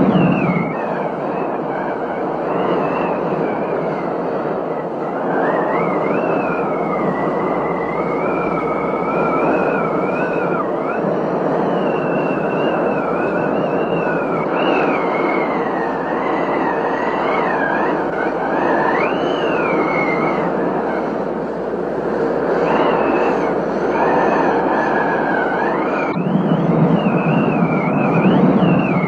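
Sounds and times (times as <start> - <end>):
thin high wavering whistle: 0.0 - 4.1, 4.7 - 21.2, 22.5 - 29.0.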